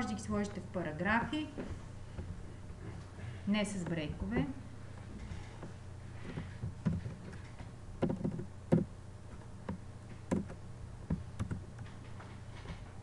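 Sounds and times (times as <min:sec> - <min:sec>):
low electrical hum: 0:00.0 - 0:13.0
keyboard keystrokes: 0:11.4 - 0:12.0.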